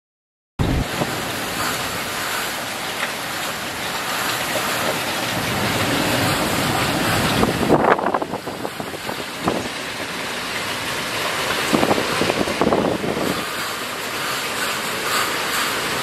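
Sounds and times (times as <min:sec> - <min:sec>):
wind gusts buffeting microphone: 0:00.6 - 0:10.7, 0:11.4 - 0:13.9
strong wind: 0:00.6 - 0:14.0
driving rain: 0:00.6 - 0:16.0.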